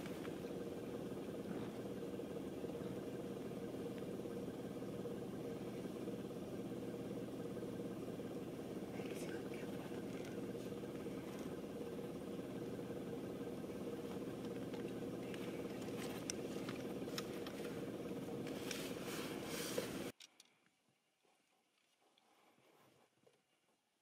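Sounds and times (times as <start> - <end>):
vehicle engine idling: 0.0 - 20.2
faint clicks: 9.0 - 11.6, 14.0 - 17.8.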